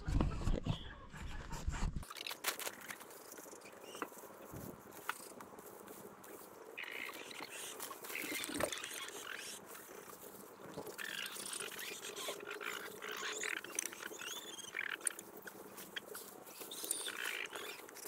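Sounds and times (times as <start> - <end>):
lettuce stalks rustling and crackling: 2.0 - 18.0
faint bird chirps: 6.8 - 10.2, 10.9 - 18.0.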